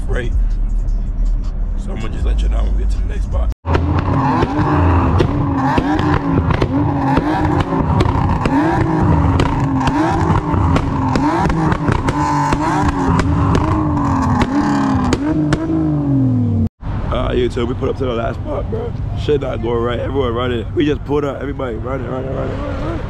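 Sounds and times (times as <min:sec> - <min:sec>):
car engine revving: 0:00.0 - 0:23.0
exhaust cracks: 0:02.1 - 0:19.1.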